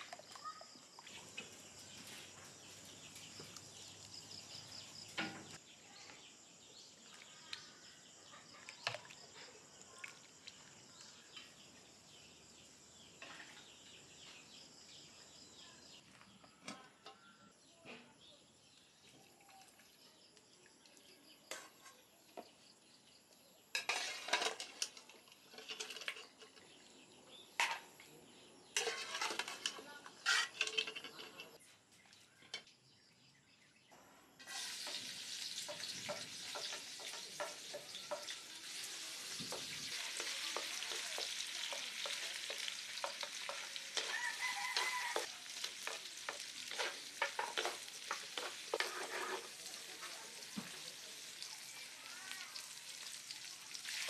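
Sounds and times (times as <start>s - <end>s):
dishes and cutlery clinking: 23.7s - 26.8s, 28.7s - 31.6s, 35.6s - 38.4s, 40.2s - 49.6s.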